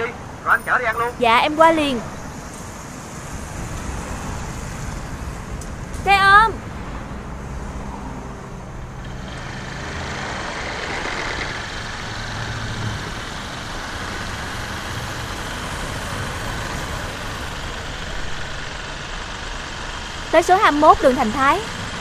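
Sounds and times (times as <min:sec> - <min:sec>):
motorbike engine idling: 0:08.9 - 0:22.0.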